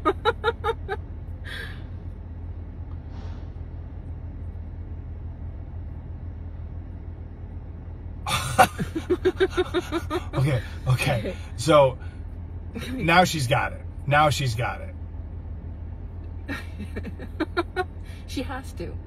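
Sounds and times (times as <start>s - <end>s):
person laughing: 0.0s - 1.6s, 8.3s - 10.8s, 16.5s - 17.9s
low hum: 0.0s - 19.0s.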